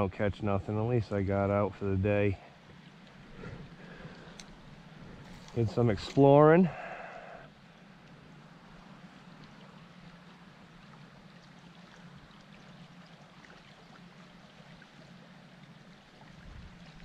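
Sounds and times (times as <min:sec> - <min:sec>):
creek water rushing: 0:00.9 - 0:17.0
faint ticks: 0:03.9 - 0:04.6, 0:08.8 - 0:09.8.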